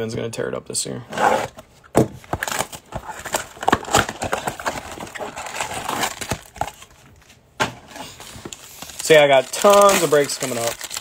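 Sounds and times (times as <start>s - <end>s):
cardboard scraping: 1.1s - 6.9s
packs rustling: 2.2s - 11.0s.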